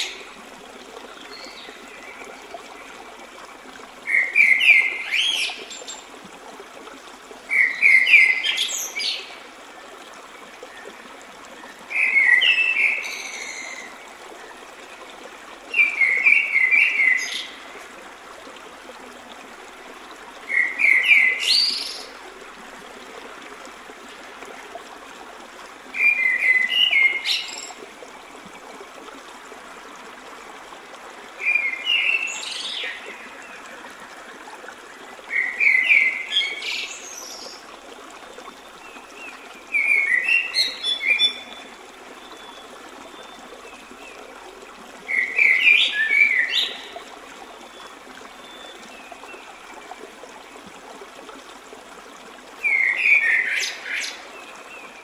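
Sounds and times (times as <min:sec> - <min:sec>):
stream rushing over rocks: 0:00.0 - 0:55.0
songbird singing: 0:07.5 - 0:09.4.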